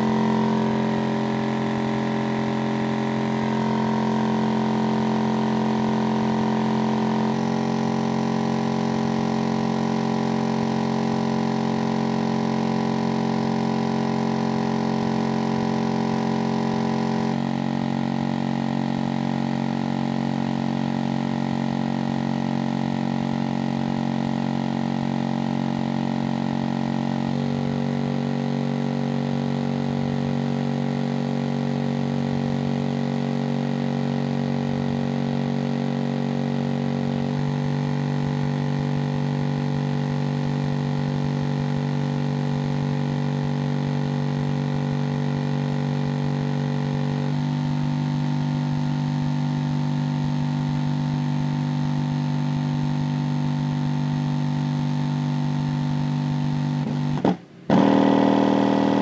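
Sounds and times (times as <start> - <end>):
subwoofer bass tone drone: 0.0 - 59.0.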